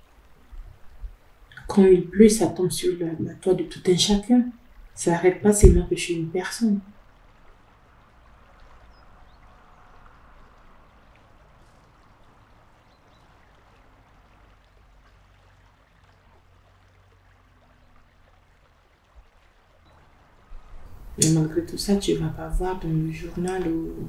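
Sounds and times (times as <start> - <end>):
running water: 0.0 - 24.0.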